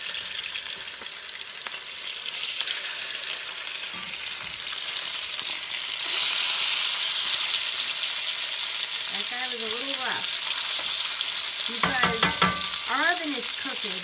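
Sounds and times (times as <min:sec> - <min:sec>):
fish sizzling in hot oil: 0:00.0 - 0:14.0
metal spatula turning fish: 0:11.7 - 0:13.0.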